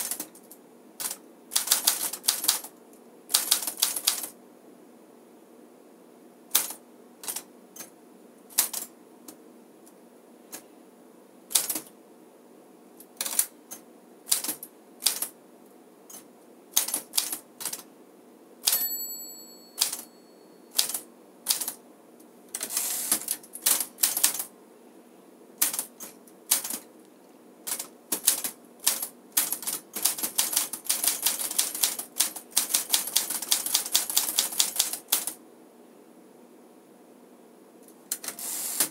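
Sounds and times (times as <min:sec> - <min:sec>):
typewriter keys striking: 0:00.0 - 0:00.4, 0:01.0 - 0:02.7, 0:08.6 - 0:08.9, 0:11.5 - 0:11.9, 0:16.8 - 0:17.8, 0:19.8 - 0:20.0, 0:25.6 - 0:26.8, 0:27.7 - 0:35.4
typewriter margin bell ring: 0:18.7 - 0:20.9.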